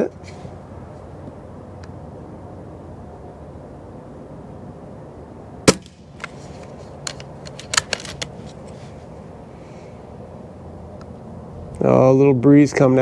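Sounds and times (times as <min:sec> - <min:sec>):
air rifle shot crack: 0:05.6 - 0:06.4.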